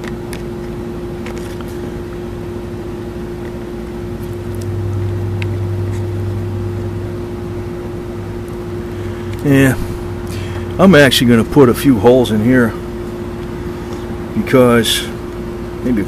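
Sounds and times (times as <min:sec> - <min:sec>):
low hum: 0:00.0 - 0:16.0
steady machine hum: 0:00.0 - 0:16.0.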